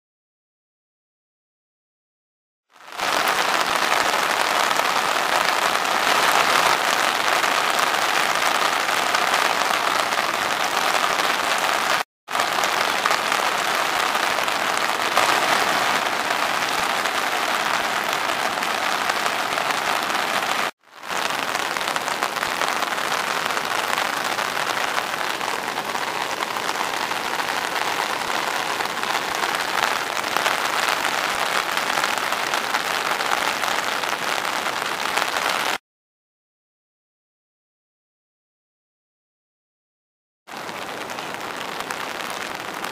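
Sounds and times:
heavy rain: 2.7 - 35.8, 40.5 - 42.9
rushing floodwater: 2.9 - 35.4.

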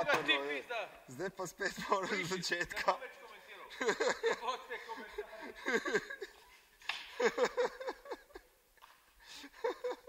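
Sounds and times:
person laughing: 3.7 - 6.5, 7.1 - 8.5, 9.3 - 10.0.

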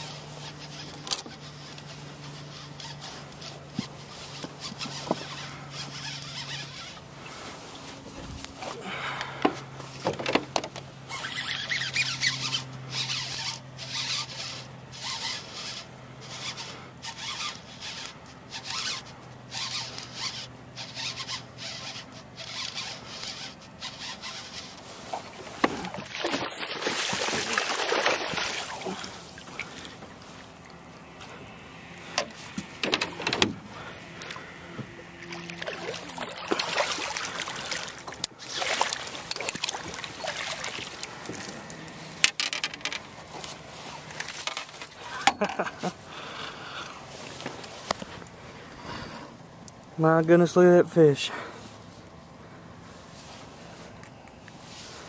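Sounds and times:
fishing reel clicking: 0.0 - 7.0, 11.0 - 24.8
water splashing: 19.5 - 31.0, 33.7 - 41.9.

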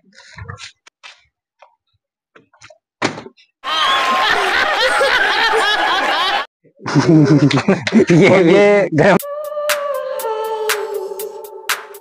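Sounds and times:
audience laughing and clapping: 3.6 - 8.4
man laughing heartily: 4.0 - 8.6.

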